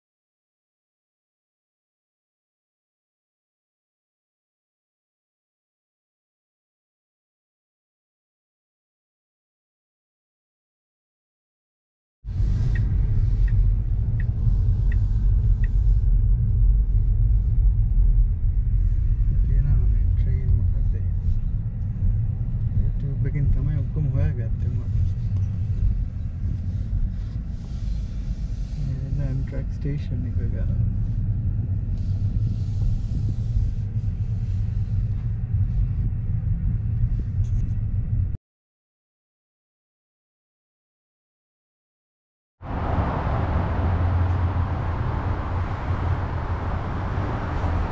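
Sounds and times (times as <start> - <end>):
car road and wind noise: 12.2 - 38.4, 42.6 - 47.9
loud low rumble: 12.3 - 38.4, 42.6 - 47.9.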